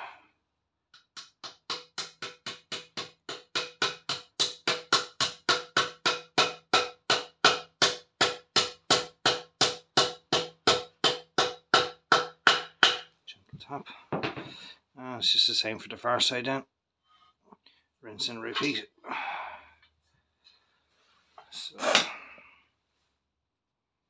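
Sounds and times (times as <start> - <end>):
hammer tapping on metal drift: 1.0 - 13.1.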